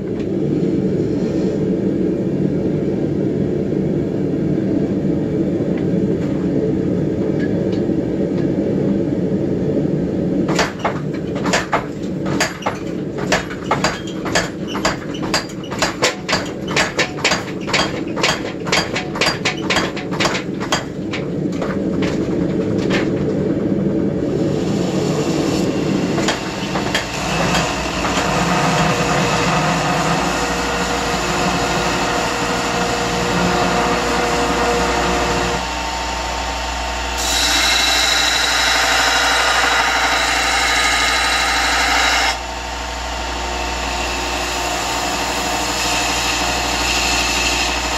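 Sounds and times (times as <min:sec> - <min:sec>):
forge burner rumble: 0:00.0 - 0:47.9
hammer striking hot steel: 0:10.5 - 0:21.2.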